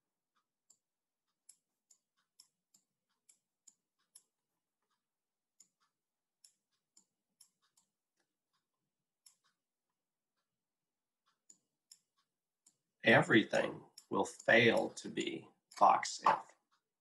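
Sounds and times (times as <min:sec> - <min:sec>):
handwriting clicks on digital whiteboard: 0:00.4 - 0:09.7, 0:13.4 - 0:16.9.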